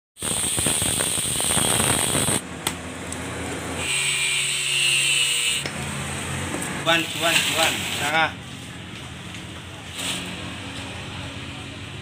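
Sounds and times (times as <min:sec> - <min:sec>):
angle grinder cutting steel: 0:00.2 - 0:02.4, 0:03.8 - 0:05.8
high whine with falling tone: 0:00.2 - 0:02.4.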